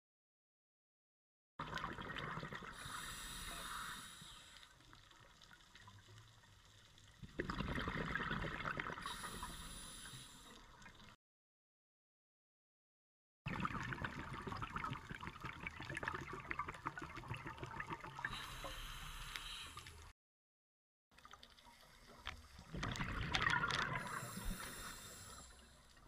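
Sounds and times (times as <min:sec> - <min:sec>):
exhaled bubbles gurgling: 0:01.6 - 0:06.0, 0:07.1 - 0:11.2, 0:13.5 - 0:20.1, 0:21.8 - 0:26.0.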